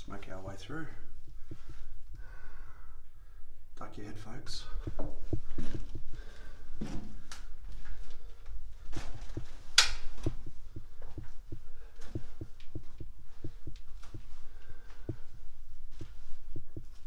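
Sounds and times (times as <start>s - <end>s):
footsteps on concrete rubble: 4.8s - 7.1s, 8.8s - 14.4s.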